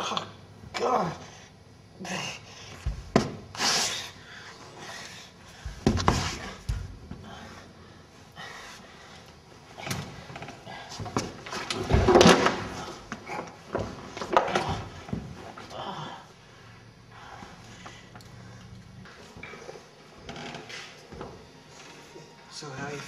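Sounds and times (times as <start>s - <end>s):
knocks and bumps: 2.8s - 3.5s, 5.5s - 7.4s.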